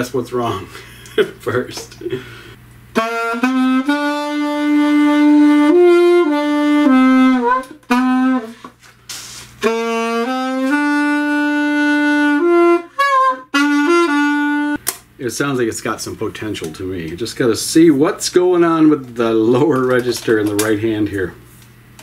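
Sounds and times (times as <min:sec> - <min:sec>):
alto saxophone held notes: 0:02.9 - 0:08.8, 0:09.6 - 0:14.8.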